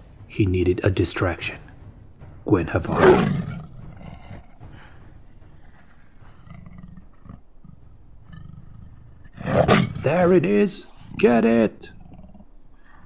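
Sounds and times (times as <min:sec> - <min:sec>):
big cat roar: 0:02.8 - 0:04.9, 0:05.6 - 0:10.1.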